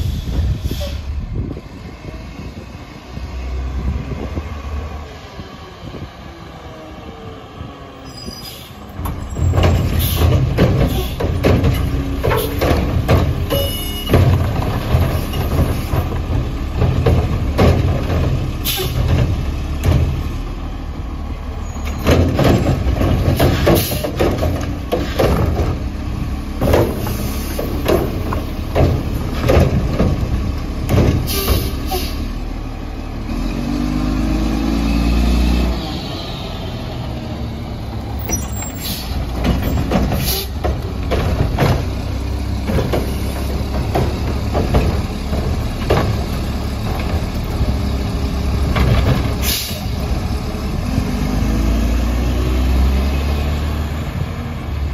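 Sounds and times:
air brake hisses: 0:00.0 - 0:01.1, 0:49.4 - 0:49.9
diesel engine revving: 0:00.0 - 0:54.9
carts banging against hopper: 0:09.0 - 0:20.5, 0:21.9 - 0:25.9, 0:26.6 - 0:32.2, 0:38.2 - 0:49.9.

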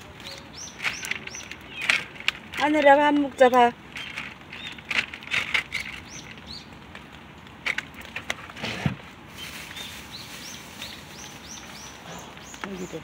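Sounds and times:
small bird chirping: 0:00.0 - 0:02.2, 0:03.4 - 0:06.8, 0:09.3 - 0:13.0.

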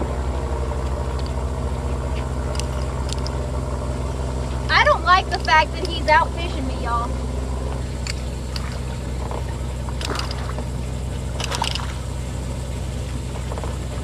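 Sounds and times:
steady low hum: 0:00.0 - 0:14.0
water splashing: 0:08.1 - 0:12.3.

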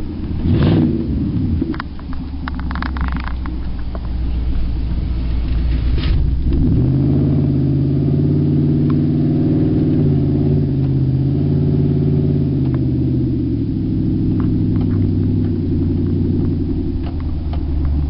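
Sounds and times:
loud engine drone: 0:06.3 - 0:18.0.

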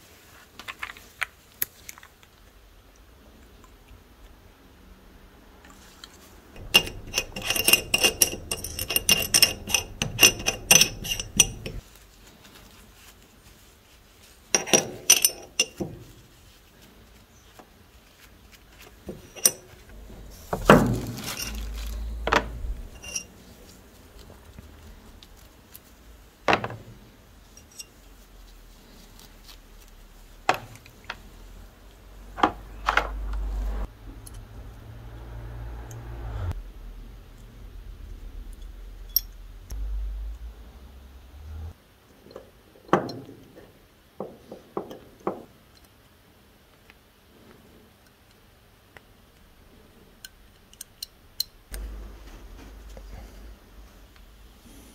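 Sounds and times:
metal parts clinking in a dish: 0:06.6 - 0:11.8, 0:14.6 - 0:15.8, 0:19.1 - 0:19.8, 0:20.5 - 0:23.3
brush scrubbing metal: 0:06.6 - 0:17.0, 0:18.9 - 0:26.0.

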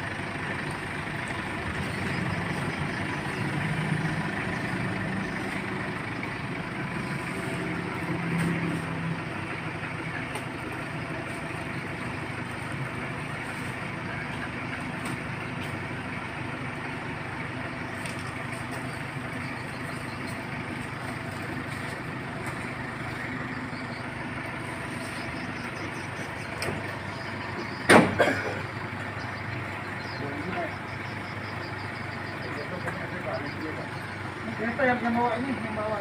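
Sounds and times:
truck engine idling: 0:00.0 - 0:36.0.

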